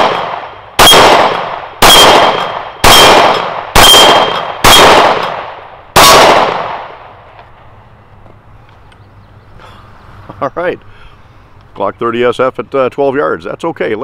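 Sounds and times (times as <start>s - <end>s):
steel plate targets ringing: 0.0s - 5.4s
pistol shots: 0.0s - 7.0s.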